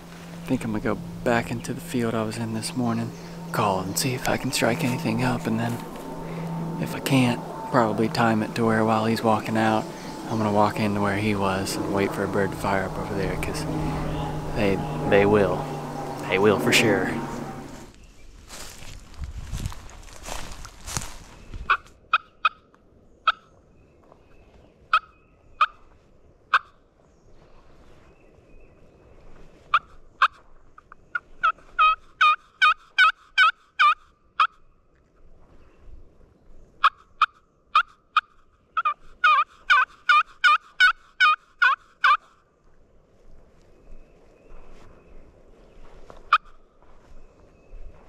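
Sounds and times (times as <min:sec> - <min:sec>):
turkey call clucks: 0:24.9 - 0:25.8, 0:31.1 - 0:34.6, 0:36.8 - 0:42.4
turkey call rapid yelps: 0:31.4 - 0:34.6, 0:36.8 - 0:42.3.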